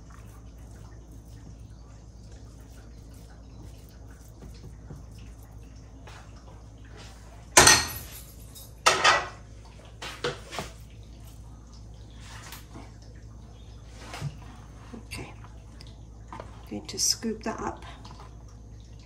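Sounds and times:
cookware clattering on counter: 0:07.6 - 0:09.4.

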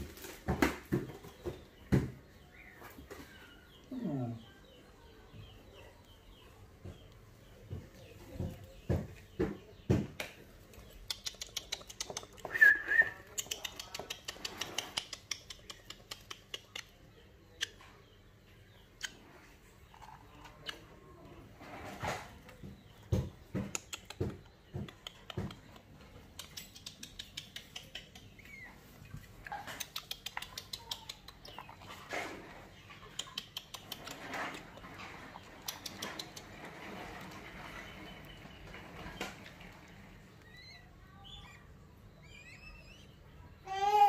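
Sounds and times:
chicks cheeping: 0:26.6 - 0:43.6.

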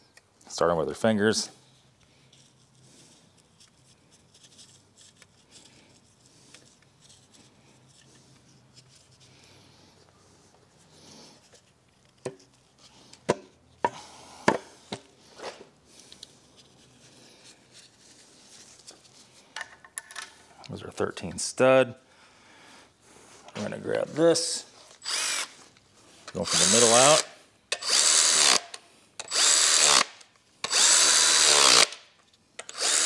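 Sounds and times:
faint rubbing and fiddling: 0:01.6 - 0:13.8, 0:15.2 - 0:19.6.

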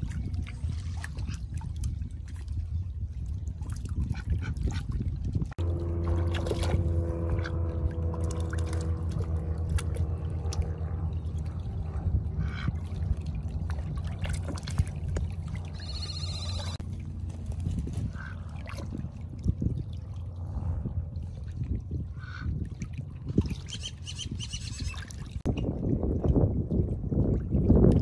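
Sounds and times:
steady low drone: 0:04.6 - 0:24.4.

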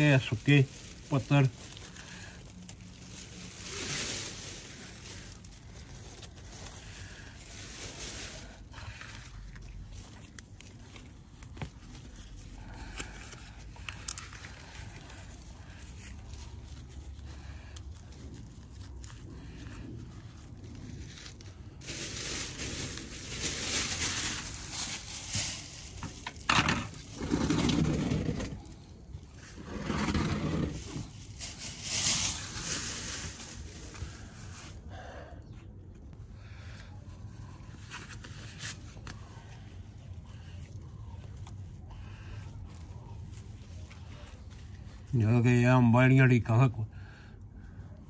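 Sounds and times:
hands scratching soil: 0:00.0 - 0:34.9, 0:36.1 - 0:46.7
plastic bin bag rustling: 0:00.0 - 0:34.9.

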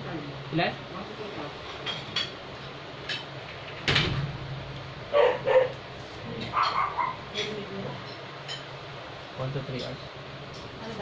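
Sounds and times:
dog barking: 0:05.1 - 0:05.8, 0:06.5 - 0:07.3.

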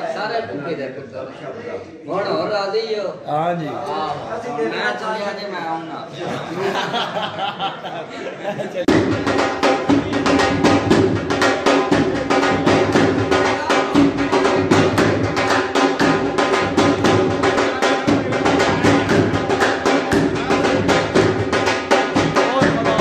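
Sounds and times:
dhol drum beat: 0:08.8 - 0:23.0.

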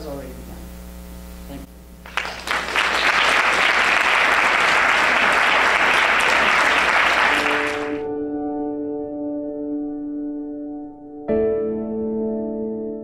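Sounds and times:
audience applauding: 0:02.0 - 0:08.0
soft piano music: 0:07.6 - 0:13.0.

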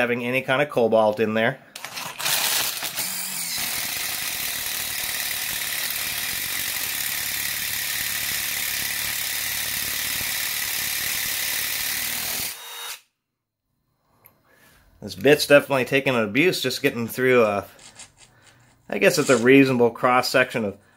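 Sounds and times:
impact driver drilling into steel: 0:01.8 - 0:13.1.

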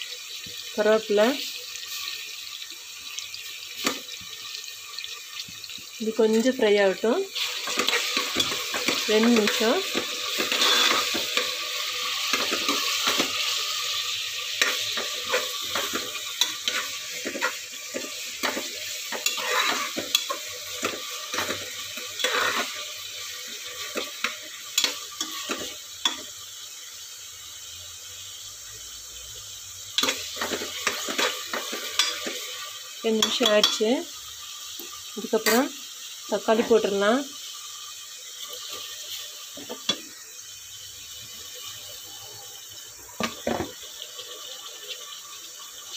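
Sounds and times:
onions sizzling in hot oil: 0:00.0 - 0:45.9
metal spoon scraping a pot: 0:07.4 - 0:11.5, 0:14.6 - 0:21.6, 0:22.2 - 0:22.8.

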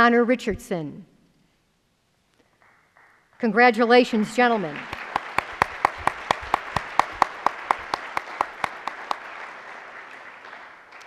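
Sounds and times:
audience applauding: 0:04.4 - 0:11.0
close sharp hand claps: 0:04.7 - 0:11.0.

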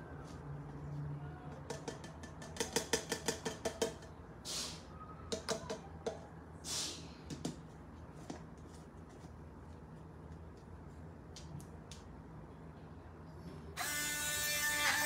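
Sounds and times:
plastic cup clicking and knocking: 0:01.6 - 0:04.1.

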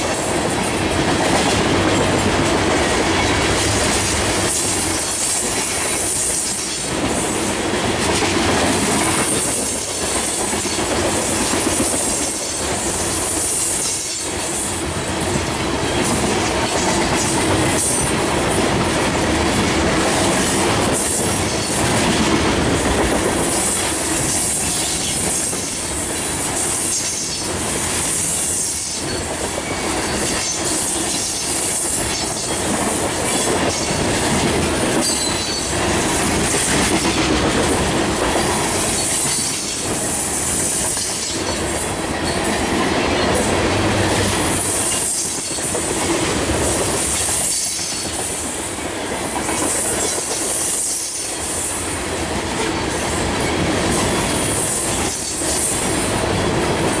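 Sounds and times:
steel wheels rolling on rail: 0:00.0 - 0:57.0.

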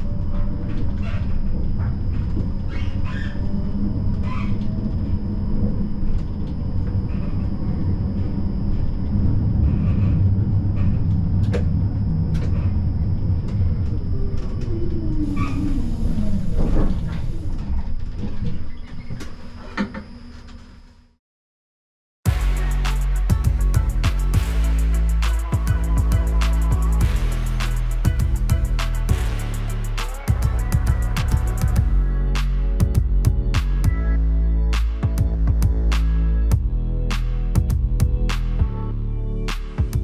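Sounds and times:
tram rumbling on rails: 0:00.0 - 0:19.5.

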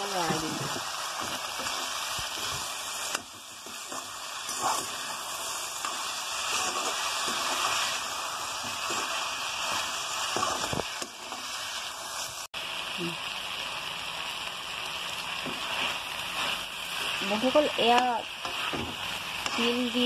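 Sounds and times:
vegetables sizzling in a wok: 0:00.0 - 0:20.0
metal spatula scraping pan: 0:03.6 - 0:07.8, 0:15.6 - 0:19.8.

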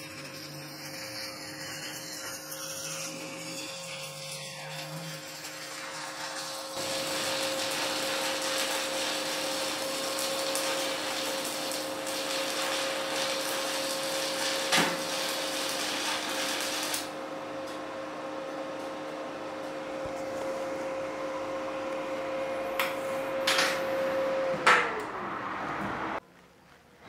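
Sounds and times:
welding arc crackling: 0:00.0 - 0:17.8
welder hum: 0:00.0 - 0:26.2.

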